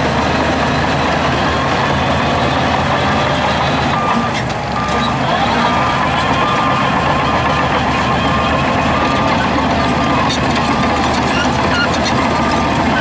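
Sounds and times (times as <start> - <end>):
heavy diesel engines running: 0.0 - 13.0
reversing alarm beeps: 3.3 - 13.0.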